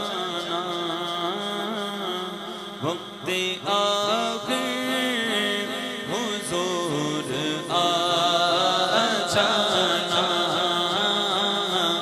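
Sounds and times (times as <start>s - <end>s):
men singing unaccompanied: 2.8s - 12.0s.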